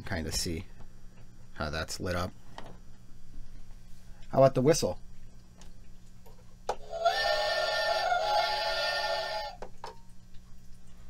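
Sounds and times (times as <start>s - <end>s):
toy steam whistle: 6.8s - 9.6s.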